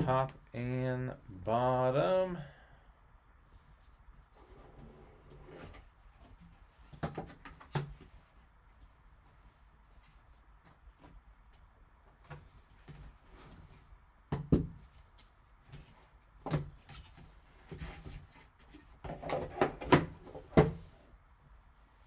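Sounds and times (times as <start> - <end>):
cardboard box knocks and rustles: 19.0 - 20.9.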